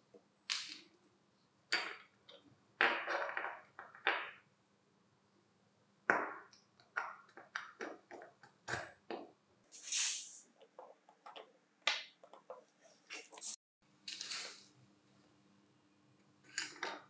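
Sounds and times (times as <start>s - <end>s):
short hiss: 9.7s - 10.4s, 14.2s - 14.7s.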